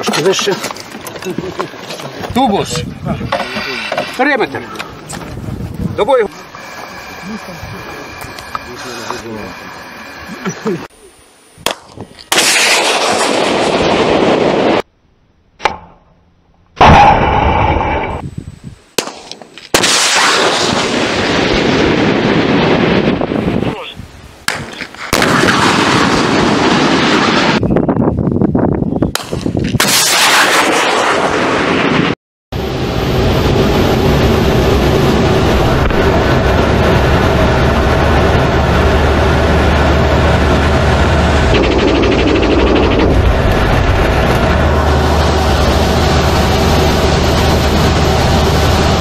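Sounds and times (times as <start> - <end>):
loud rushing missile launch blast: 12.3 - 14.8, 19.7 - 23.6, 24.5 - 27.6, 29.8 - 49.0
missile launch bang: 16.8 - 18.2, 19.8 - 23.2, 24.5 - 27.6, 29.8 - 32.2
low cockpit rumble: 32.6 - 49.0.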